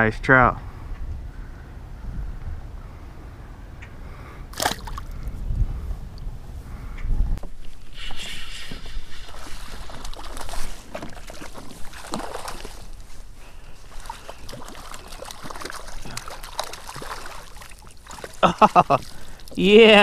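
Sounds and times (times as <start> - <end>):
fish splashing in water: 4.5 - 5.2, 7.8 - 19.6.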